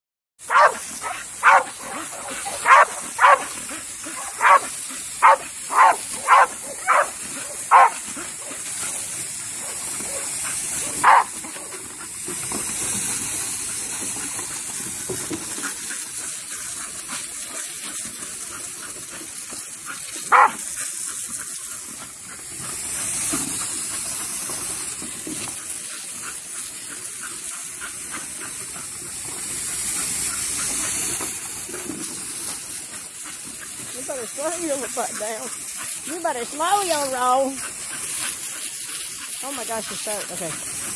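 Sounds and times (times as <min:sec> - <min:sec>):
garden hose spraying water: 0:00.4 - 0:40.9
dog barking: 0:00.5 - 0:03.5, 0:04.1 - 0:08.6, 0:09.6 - 0:11.7, 0:20.3 - 0:20.6.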